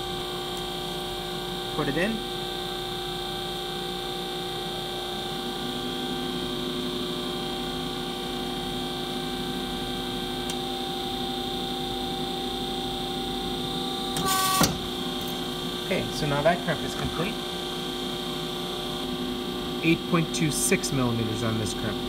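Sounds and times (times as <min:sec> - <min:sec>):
hydraulic crimping machine humming: 0:00.0 - 0:22.0.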